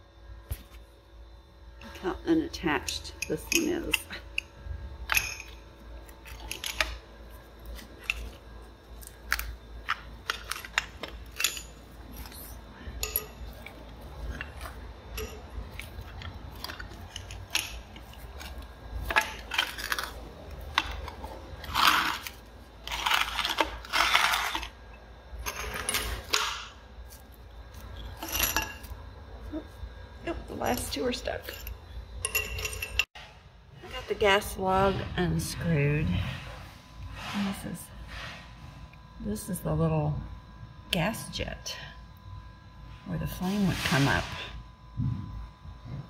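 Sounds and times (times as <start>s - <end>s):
gritty scrapes: 15.6s - 24.8s.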